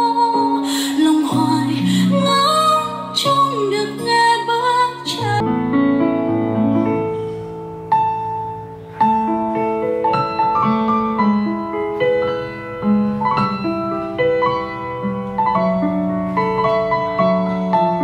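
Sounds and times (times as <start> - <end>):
slow solo piano melody: 5.2 - 18.0.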